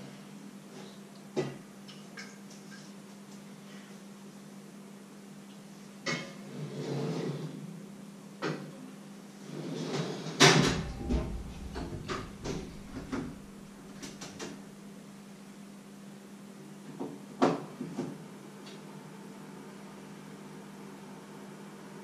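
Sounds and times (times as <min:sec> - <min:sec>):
cupboard doors and cookware clattering: 0:10.0 - 0:14.6
steady low hum: 0:10.4 - 0:16.6
loud bang: 0:10.5 - 0:14.0.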